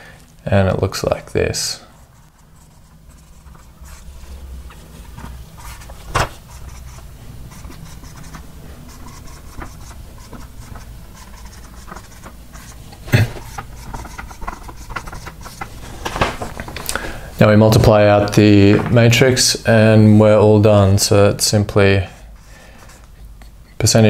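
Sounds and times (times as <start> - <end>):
low steady hum: 0.0 - 24.0
marker squeaking on whiteboard: 4.7 - 15.7.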